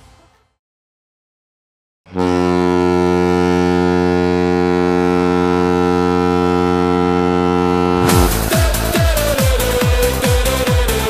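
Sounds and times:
goal horn blast: 7.6s - 9.0s.

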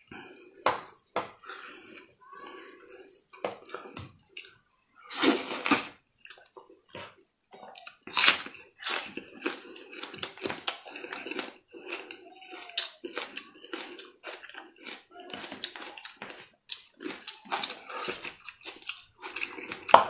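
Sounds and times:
wet slurping and chewing: 0.0s - 20.0s.

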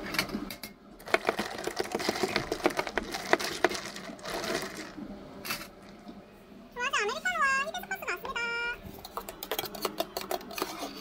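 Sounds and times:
hard objects clicking: 1.0s - 4.7s.

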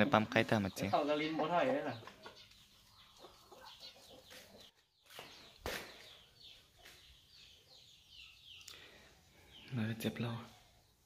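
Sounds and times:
roosters clucking: 0.0s - 10.8s
small birds chirping: 0.0s - 11.0s.

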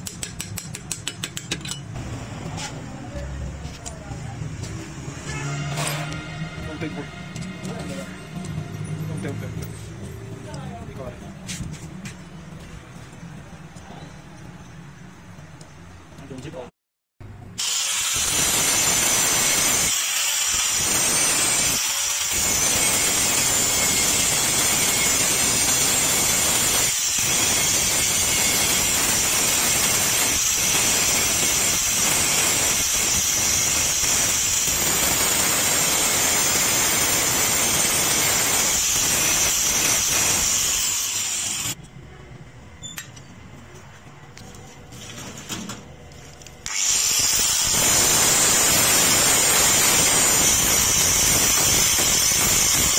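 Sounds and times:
angle grinder grinding steel: 17.6s - 41.8s, 46.6s - 52.9s.

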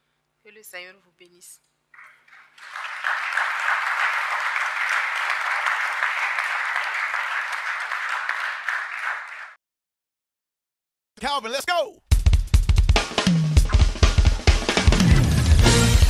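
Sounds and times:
congregation applauding: 2.0s - 9.6s.

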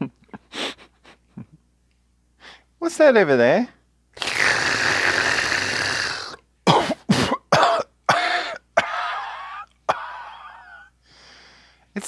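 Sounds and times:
person hissing breath: 0.5s - 0.9s, 2.4s - 2.7s, 4.2s - 6.4s, 11.0s - 11.9s
raspy wheezing cough: 6.2s - 10.9s
person coughing: 6.6s - 10.9s.

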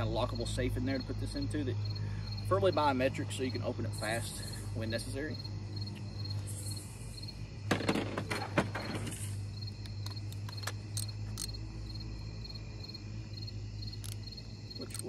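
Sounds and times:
crickets chirping: 0.0s - 15.0s
low hum: 3.8s - 15.0s.

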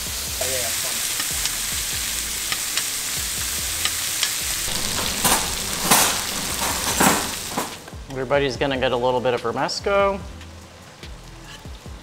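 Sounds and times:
fish sizzling in butter: 0.0s - 8.0s
metal spoon scraping skillet: 3.9s - 7.8s, 11.4s - 11.7s.

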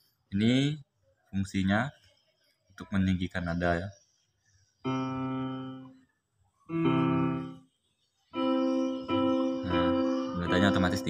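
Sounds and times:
piano notes through speaker: 4.9s - 5.9s, 6.7s - 7.6s, 8.4s - 11.0s.

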